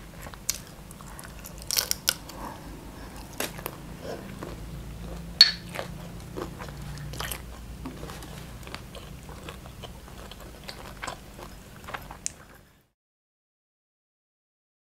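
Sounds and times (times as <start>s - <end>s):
person chewing food: 0.0s - 12.8s
faint low hum: 0.0s - 12.9s
wet mouth clicks: 5.4s - 6.0s.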